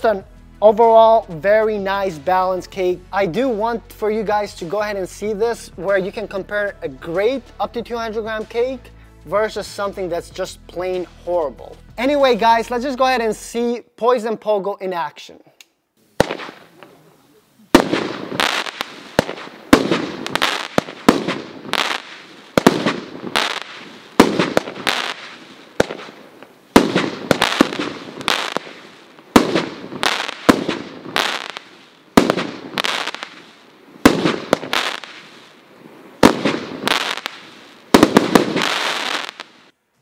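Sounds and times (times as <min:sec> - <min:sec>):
fireworks crackle: 0:16.0 - 0:39.8
fireworks sharp reports: 0:16.2 - 0:39.7.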